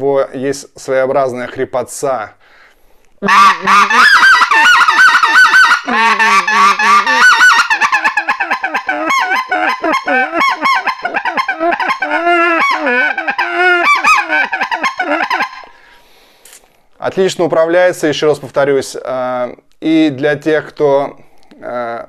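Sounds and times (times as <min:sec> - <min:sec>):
goose call honks: 0:03.2 - 0:15.6.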